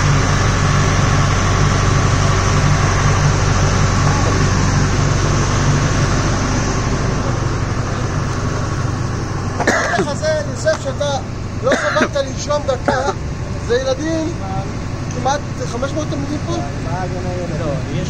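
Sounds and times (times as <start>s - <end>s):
diesel generator droning: 0.0s - 18.0s.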